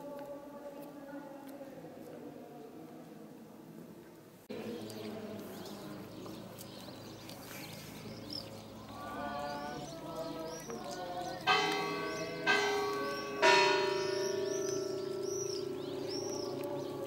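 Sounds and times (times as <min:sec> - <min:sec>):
birds chirping: 0:04.5 - 0:17.0
church bell ringing: 0:11.4 - 0:17.0.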